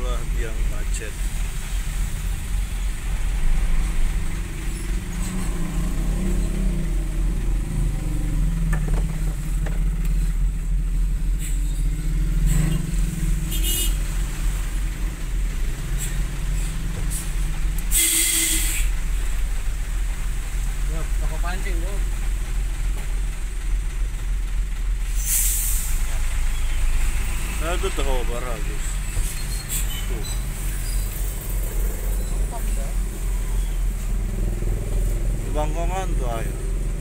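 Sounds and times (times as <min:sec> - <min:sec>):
large vehicle engine running: 0:00.0 - 0:37.0
loud hiss: 0:25.1 - 0:27.5.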